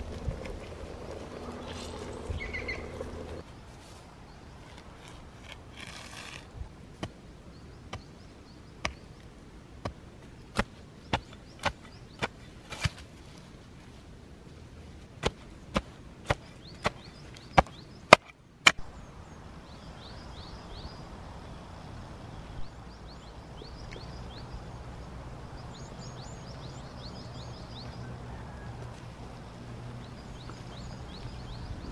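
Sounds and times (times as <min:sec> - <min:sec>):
birds chirping: 0:00.0 - 0:03.4, 0:18.9 - 0:31.9.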